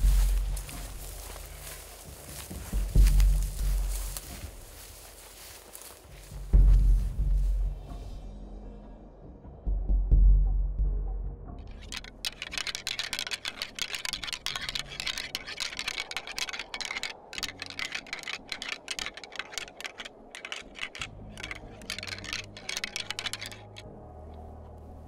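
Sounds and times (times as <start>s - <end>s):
antlers clacking together: 0.0s - 6.4s, 11.6s - 23.8s.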